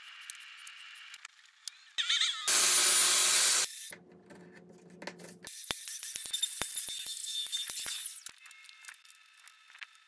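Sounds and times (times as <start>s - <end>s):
power tool cutting wood: 2.5s - 3.7s.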